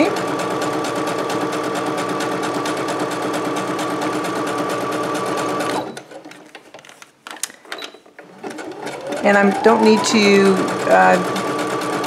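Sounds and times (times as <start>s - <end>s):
sewing machine stitching: 0.0s - 6.7s, 7.8s - 12.0s.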